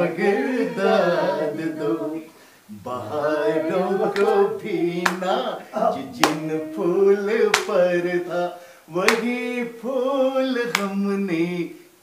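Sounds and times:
people singing unaccompanied: 0.0 - 11.7
hand claps: 4.1 - 4.4, 5.0 - 5.3, 6.2 - 6.5, 7.4 - 7.9, 9.0 - 9.4, 10.7 - 11.0.

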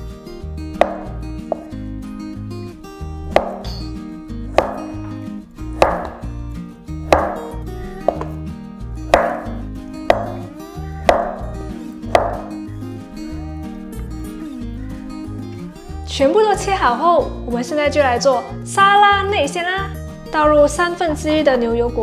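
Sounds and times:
soft background music: 0.0 - 22.0
knife cutting onto wooden board: 5.8 - 6.2.

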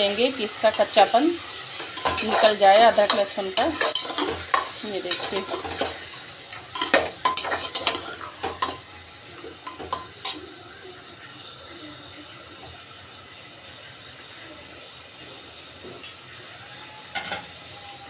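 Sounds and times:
meat sizzling in oil: 0.0 - 18.0
spoon scraping metal pot: 1.8 - 8.8
spoon clanking on pot: 1.8 - 8.9, 9.6 - 10.5.

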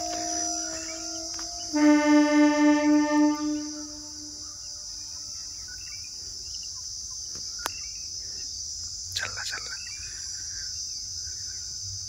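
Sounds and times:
electric train horn: 0.0 - 5.4
crickets chirring: 0.0 - 12.0.

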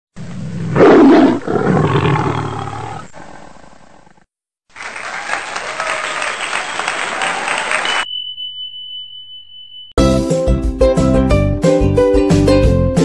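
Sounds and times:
tiger roaring: 0.2 - 4.2.

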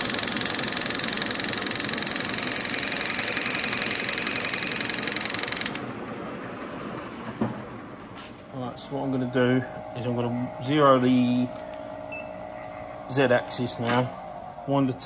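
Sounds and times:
milling machine cutting with chatter: 0.0 - 5.8
machine running: 0.0 - 15.0.

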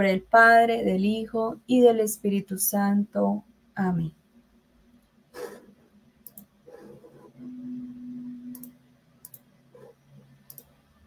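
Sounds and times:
low steady hum: 0.0 - 11.0
faint sharp clicks: 6.2 - 6.5, 8.5 - 9.5, 10.4 - 10.8.

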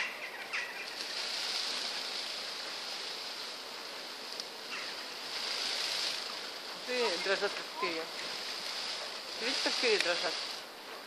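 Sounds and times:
peacock quills rattling: 0.0 - 11.0.

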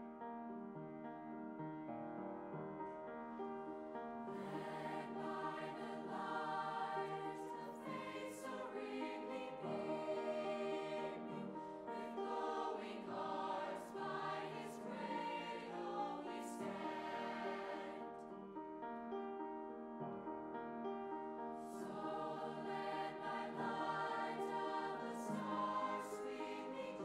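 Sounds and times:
choir singing in harmony: 3.8 - 18.6, 21.4 - 27.0.

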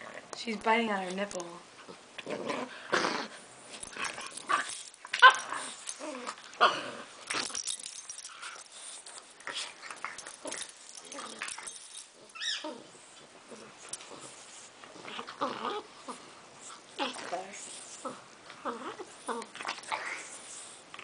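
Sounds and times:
puppy high whine: 8.2 - 14.3
puppies yipping and whimpering: 12.3 - 12.8.

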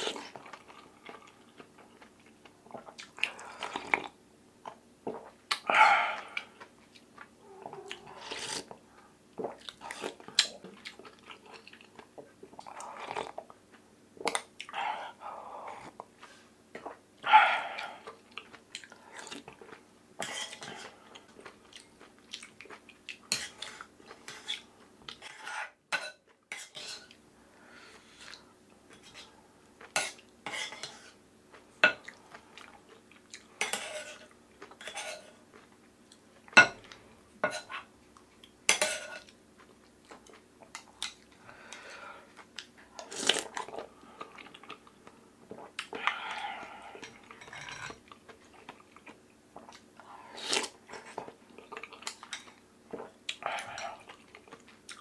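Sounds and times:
chewing food: 5.5 - 14.8, 17.6 - 25.2, 39.2 - 55.0.

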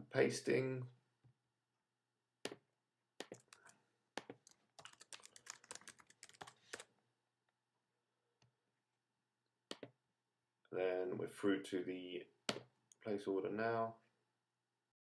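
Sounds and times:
keyboard typing: 3.2 - 6.9.

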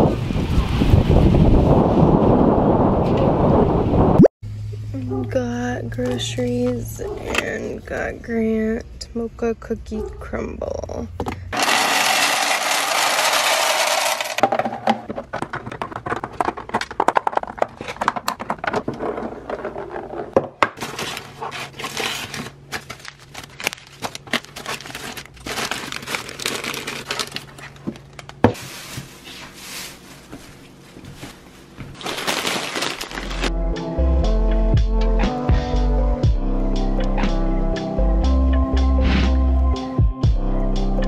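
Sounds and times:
dry pasta rattling into glass: 11.6 - 14.4
packaging crinkling: 20.8 - 33.5.

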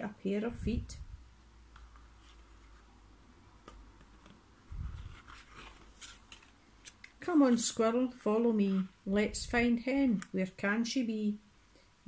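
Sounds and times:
picture book rustling and ticking: 3.6 - 7.8.

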